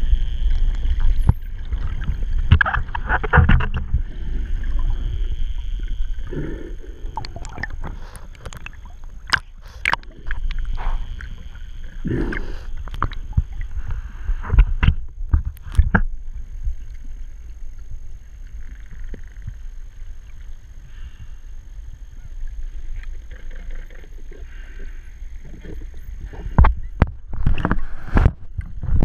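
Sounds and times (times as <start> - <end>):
underwater water rumble: 0.0 - 29.0.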